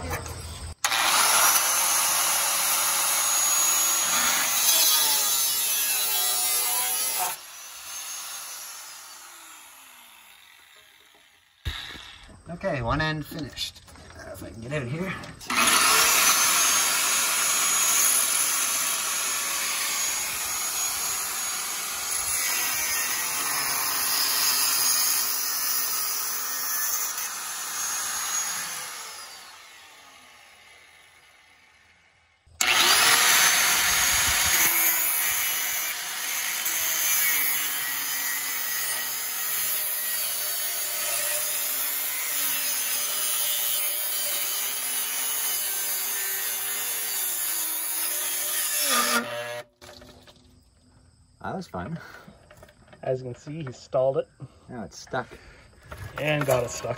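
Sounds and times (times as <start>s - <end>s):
angle grinder cutting metal pipe: 0.8s - 12.1s, 15.4s - 31.9s, 32.6s - 49.7s.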